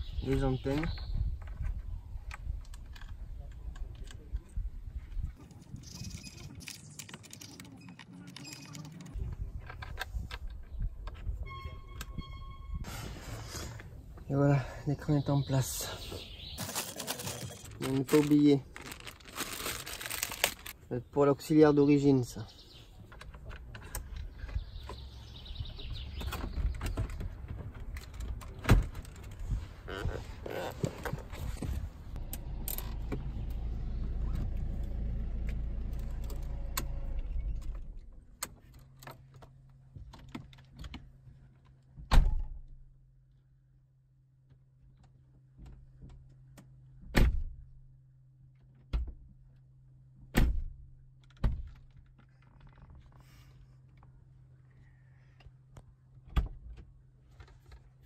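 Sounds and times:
faint squeak: 11.4s - 12.9s.

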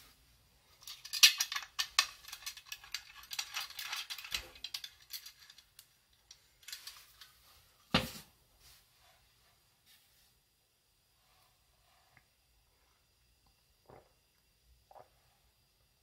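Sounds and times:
metal flask clicking and rattling: 0.8s - 7.4s.

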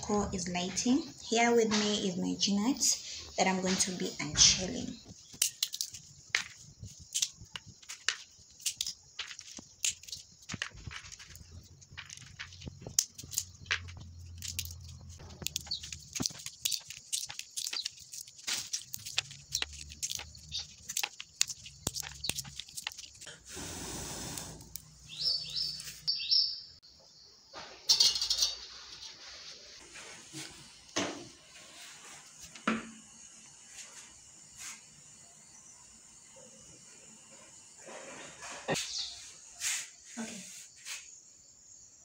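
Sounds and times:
peanut shells cracking: 5.0s - 23.3s.

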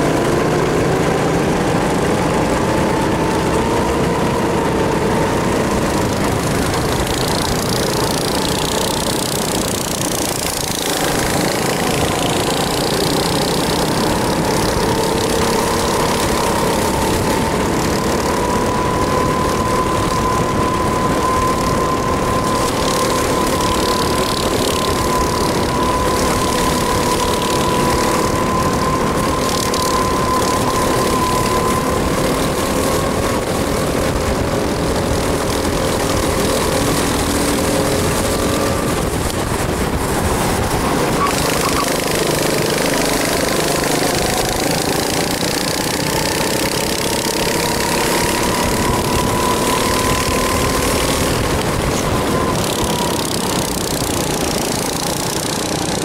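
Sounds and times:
kart engine running at speed: 0.0s - 56.0s.

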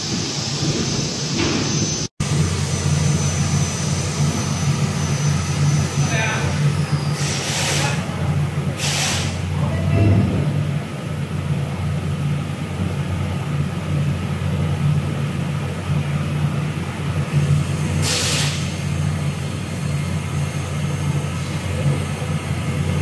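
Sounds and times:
burst of hiss: 7.0s - 8.0s, 8.8s - 9.5s, 18.0s - 19.0s.

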